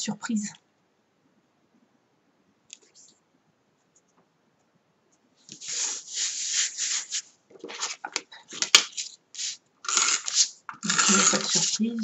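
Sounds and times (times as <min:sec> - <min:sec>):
paper rustling: 0:05.5 - 0:12.0
paper scraping: 0:05.5 - 0:12.0.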